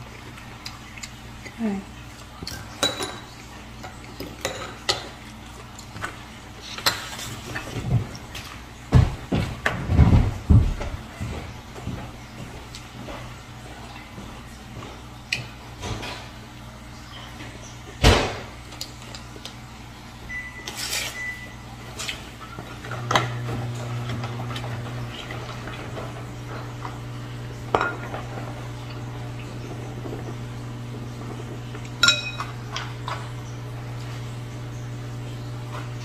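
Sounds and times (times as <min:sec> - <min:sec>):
steady low hum: 0:00.0 - 0:36.0
plates and cutlery clinking: 0:02.6 - 0:05.2, 0:27.7 - 0:28.5, 0:32.0 - 0:33.3
china clink ringing: 0:32.0 - 0:32.5.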